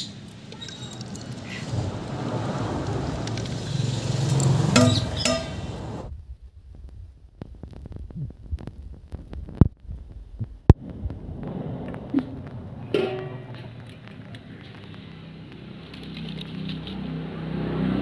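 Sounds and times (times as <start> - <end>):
burning wood crackling: 0.0 - 17.2
steady rushing noise: 1.7 - 18.0.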